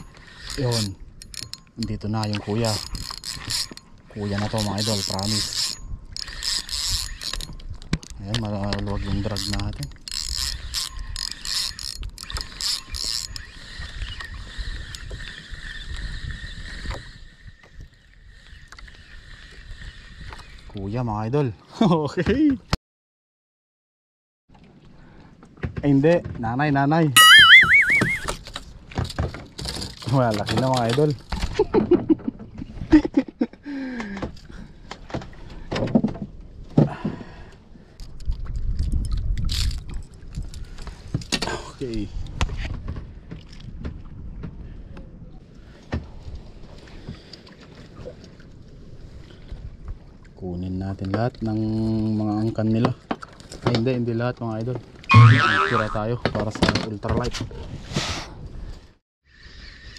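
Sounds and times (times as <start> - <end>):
fishing reel drag buzzing: 0.0 - 1.5, 2.3 - 7.5, 9.0 - 17.6, 27.2 - 28.4, 55.1 - 56.0
short falling hum: 27.2 - 28.3, 55.1 - 56.0.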